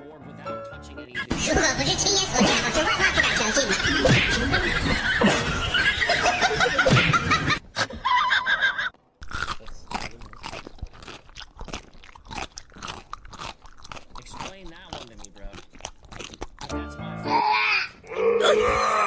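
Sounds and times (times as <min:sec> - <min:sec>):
mix of voices: 0:01.0 - 0:06.9
cat chewing on sneaker: 0:09.2 - 0:16.8.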